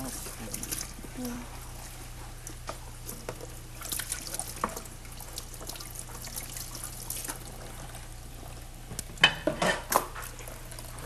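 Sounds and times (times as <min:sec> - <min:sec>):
tap water running into sink: 0:03.1 - 0:07.8
dishes clinking: 0:09.2 - 0:10.1.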